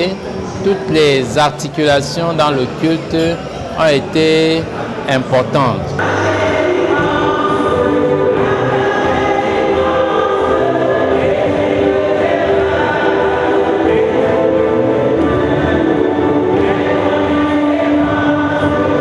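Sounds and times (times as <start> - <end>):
choir singing a hymn: 5.1 - 19.0.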